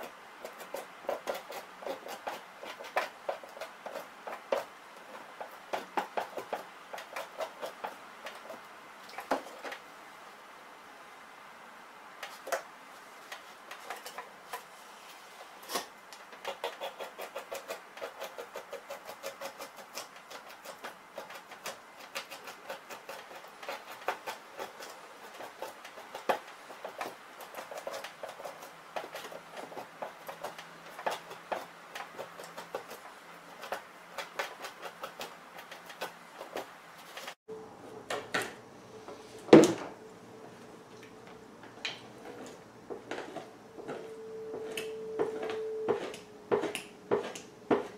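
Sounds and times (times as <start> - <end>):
knife scraping pelt: 0.0 - 8.6, 13.3 - 37.4, 41.7 - 47.9.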